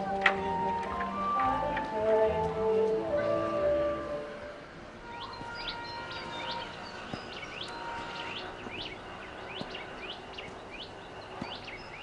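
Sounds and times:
faint outdoor background noise: 0.0 - 12.0
small birds chirping: 5.0 - 12.0.

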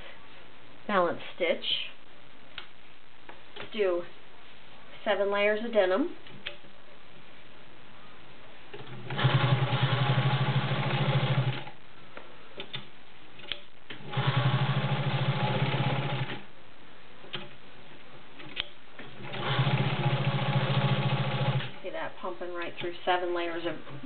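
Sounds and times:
sewing machine stitching: 8.8 - 11.7, 14.0 - 16.4, 19.2 - 21.8.

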